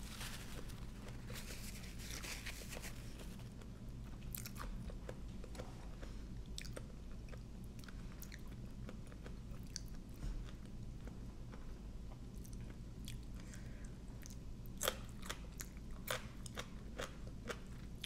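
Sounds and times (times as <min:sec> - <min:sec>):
person chewing and crunching food: 0:00.0 - 0:18.0.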